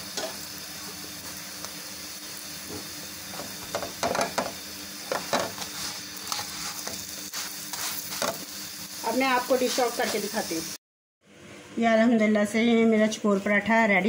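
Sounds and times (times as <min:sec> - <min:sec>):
flatbread sizzling in a pan: 0:00.0 - 0:10.8.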